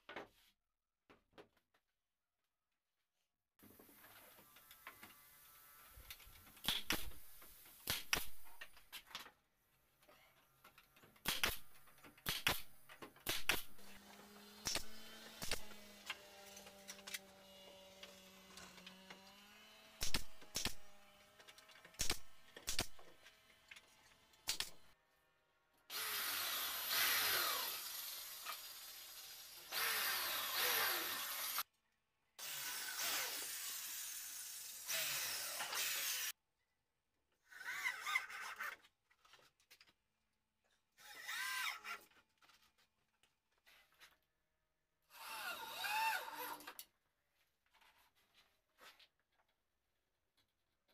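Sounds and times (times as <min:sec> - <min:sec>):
nail gun firing: 0:06.6 - 0:08.7, 0:11.2 - 0:16.2, 0:20.0 - 0:21.1, 0:22.0 - 0:23.2, 0:24.4 - 0:24.9
power drill driving fasteners: 0:10.9 - 0:17.3, 0:18.0 - 0:24.8, 0:25.9 - 0:31.6, 0:34.8 - 0:36.3.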